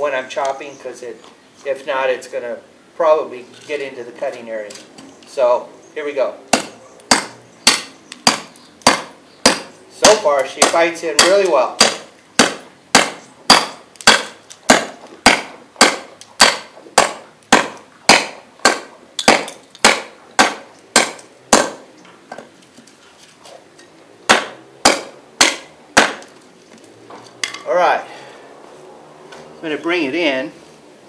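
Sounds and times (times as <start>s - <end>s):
blade chopping into log: 6.5s - 21.8s, 24.3s - 26.3s.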